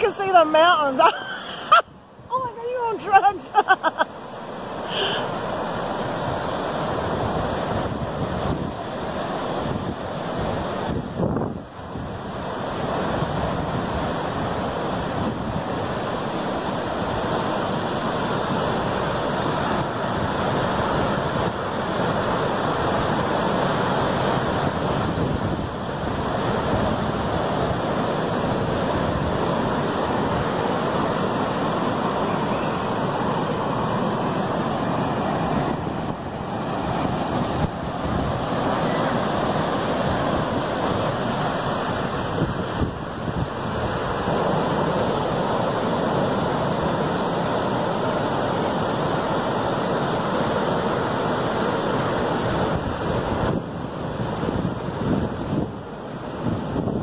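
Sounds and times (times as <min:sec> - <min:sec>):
surf breaking on beach: 0:00.0 - 0:57.0.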